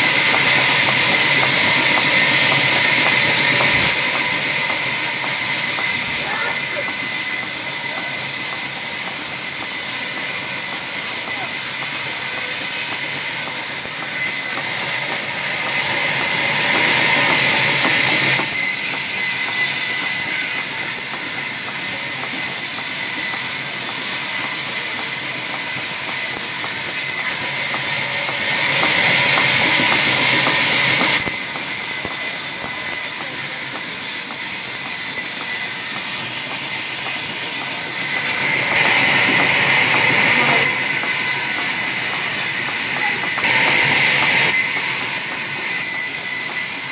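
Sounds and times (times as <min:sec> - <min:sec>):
band saw cutting log: 0:00.0 - 0:46.9.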